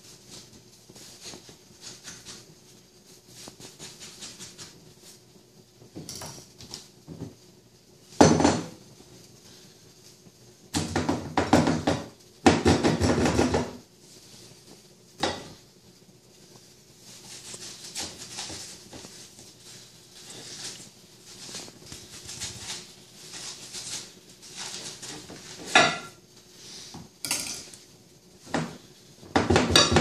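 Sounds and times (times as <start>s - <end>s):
knocking and clatter: 10.8s - 13.8s.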